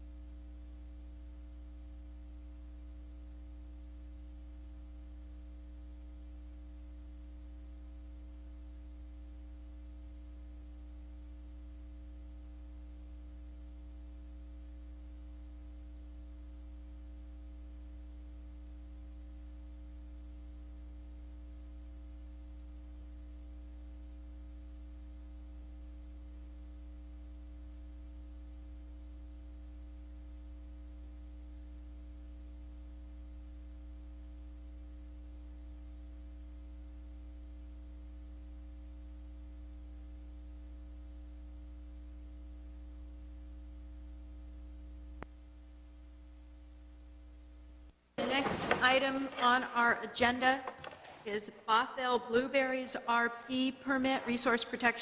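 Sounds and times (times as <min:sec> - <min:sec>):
electrical mains hum: 0:00.0 - 0:55.0.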